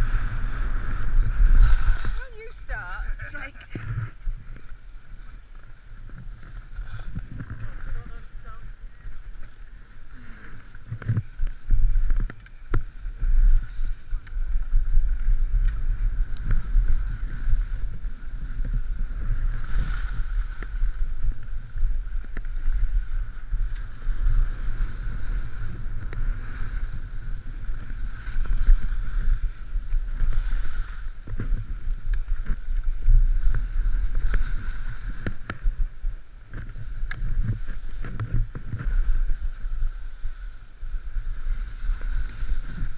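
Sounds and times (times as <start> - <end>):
skis scraping on snow: 0.0 - 42.9
wind buffeting microphone: 0.0 - 42.9
clicks and knocks of skis and poles: 3.6 - 8.0, 10.2 - 35.8, 36.4 - 40.5.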